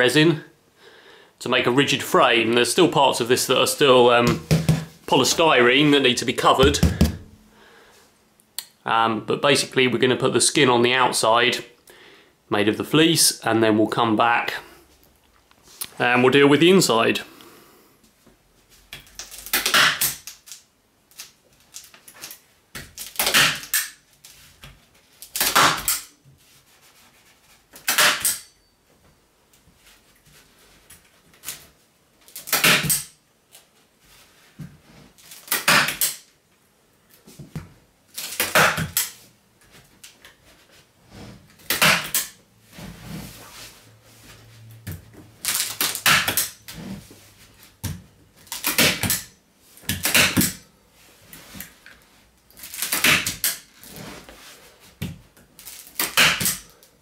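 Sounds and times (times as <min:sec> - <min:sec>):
fabric rustling: 0:42.6 - 0:45.4.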